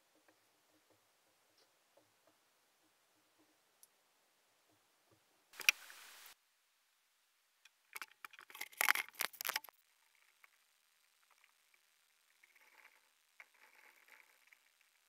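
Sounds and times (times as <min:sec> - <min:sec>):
short hiss: 0:05.6 - 0:06.4
clicks and knocks of handling: 0:07.6 - 0:09.7.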